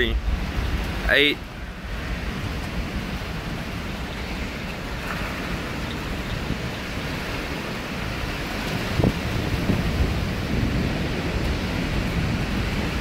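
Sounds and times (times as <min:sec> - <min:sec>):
strong wind rushing: 0:00.0 - 0:13.0
wind buffeting microphone: 0:00.0 - 0:13.0.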